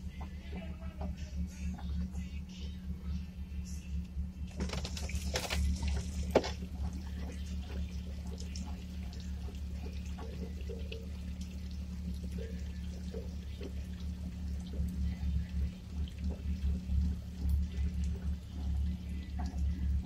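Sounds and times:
water trickling and lapping: 4.5s - 20.0s.

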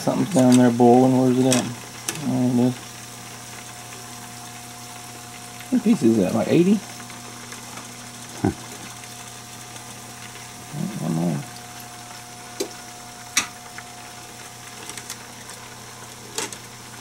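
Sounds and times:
hot oil bubbling: 0.0s - 17.0s
man humming: 8.3s - 8.8s.

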